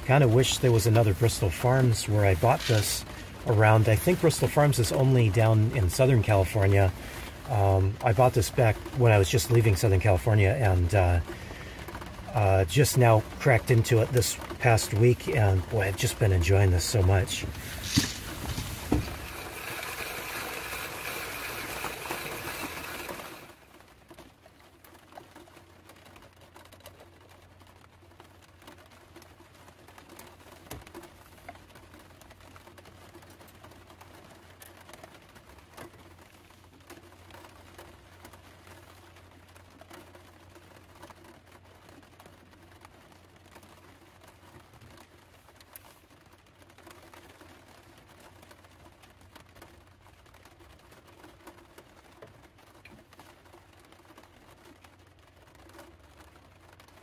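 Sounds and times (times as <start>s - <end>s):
hand coffee grinder grinding: 2.4s - 3.1s, 17.4s - 23.5s
faint ticks and taps: 22.3s - 57.0s.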